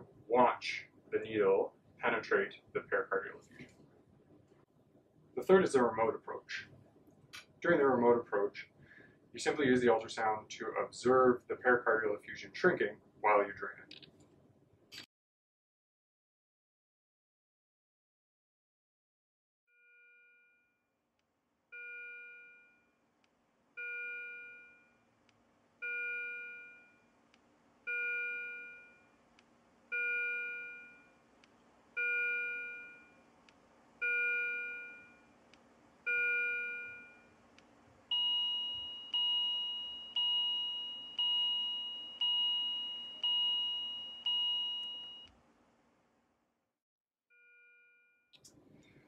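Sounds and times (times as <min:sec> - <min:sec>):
patient monitor alarm chime: 0:19.7 - 0:20.8, 0:21.8 - 0:22.9, 0:23.8 - 0:25.0, 0:25.8 - 0:27.0, 0:27.9 - 0:29.1, 0:29.9 - 0:31.2, 0:32.0 - 0:33.2, 0:34.0 - 0:35.3, 0:36.1 - 0:37.3, 0:38.1 - 0:45.3, 0:47.3 - 0:48.3.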